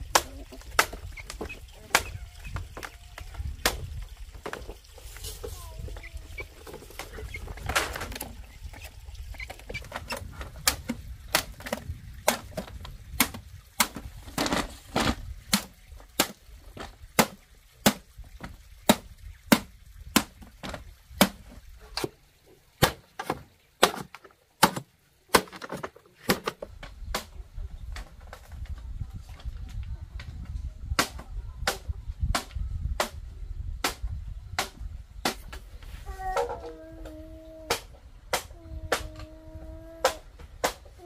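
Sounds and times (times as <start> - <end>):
machete chopping bamboo: 17.2 - 18.0, 22.8 - 27.3, 31.0 - 33.2, 34.6 - 35.6.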